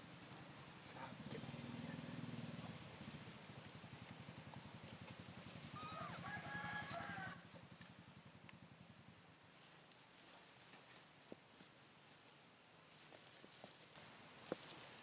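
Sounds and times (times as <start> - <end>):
bird chirping: 1.4 - 2.9, 5.3 - 7.0.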